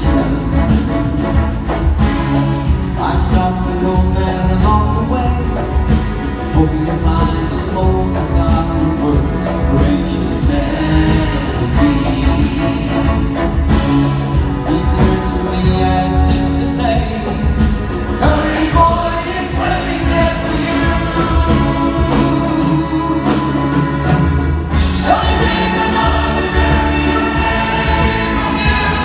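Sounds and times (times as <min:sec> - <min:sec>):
orchestra and band playing: 0:00.0 - 0:29.0
large choir singing: 0:09.4 - 0:16.3, 0:17.3 - 0:29.0.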